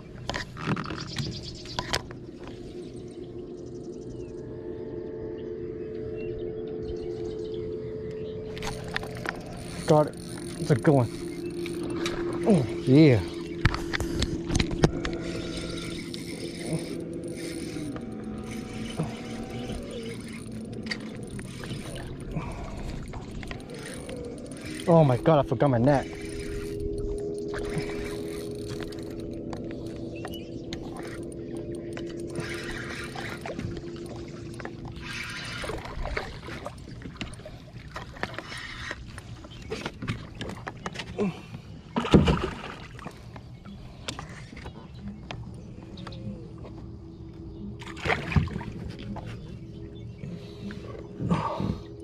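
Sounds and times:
fishing rod and reel clicks: 0.2 - 2.6, 8.1 - 41.2
electric motor humming: 8.4 - 36.8.

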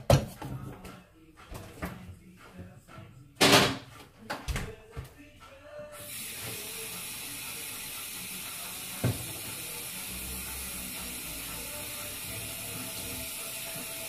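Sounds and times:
steady hiss: 6.0 - 14.0.

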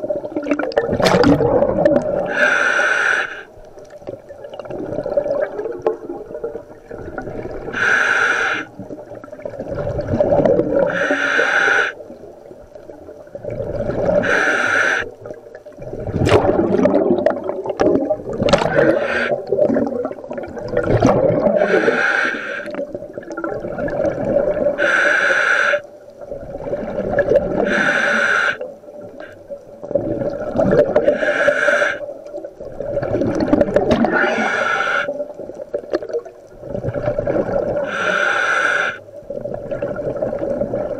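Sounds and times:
exhaled bubbles rumbling: 0.0 - 2.5, 3.5 - 7.9, 8.7 - 11.1, 12.0 - 14.5, 15.1 - 24.9, 25.9 - 27.9, 28.6 - 31.4, 32.0 - 38.1, 39.0 - 40.9
hissing regulator inhalation: 2.3 - 3.5, 7.8 - 8.7, 10.9 - 12.0, 14.2 - 15.1, 18.7 - 19.4, 21.6 - 22.8, 24.8 - 25.9, 27.6 - 29.4, 31.0 - 32.1, 34.1 - 35.2, 37.8 - 39.0.

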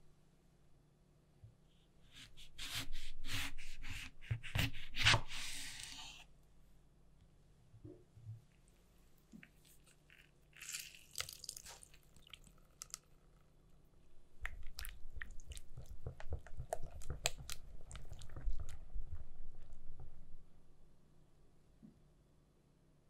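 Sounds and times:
knife cutting on wooden board: 2.2 - 5.8.

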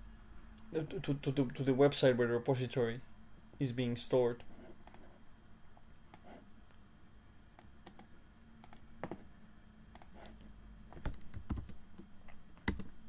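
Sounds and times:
mouse clicks: 7.6 - 8.8, 9.9 - 11.1.

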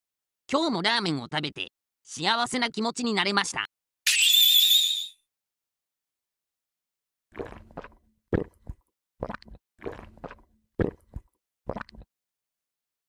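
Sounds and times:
person gulping a drink: 7.3 - 12.1.

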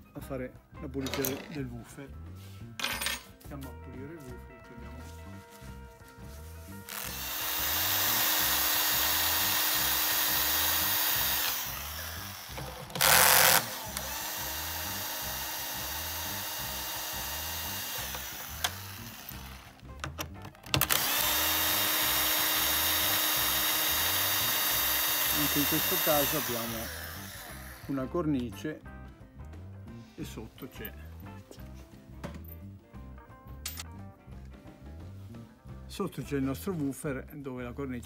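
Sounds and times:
power tool motor running: 6.9 - 19.8, 20.8 - 28.0.

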